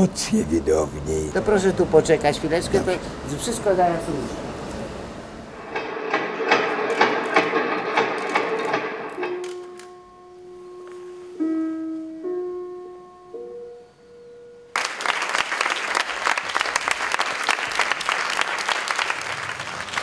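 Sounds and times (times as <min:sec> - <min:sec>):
sustained musical notes: 0:09.0 - 0:14.8
audience applause: 0:14.8 - 0:20.0.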